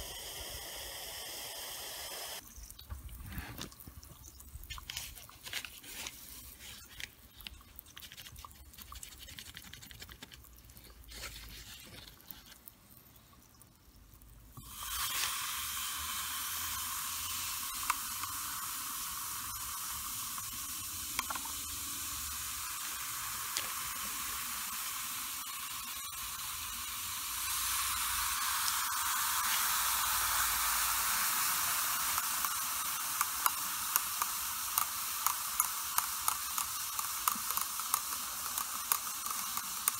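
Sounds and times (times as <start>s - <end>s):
hydrogen bubbles hissing: 0.0s - 9.3s, 10.4s - 39.9s.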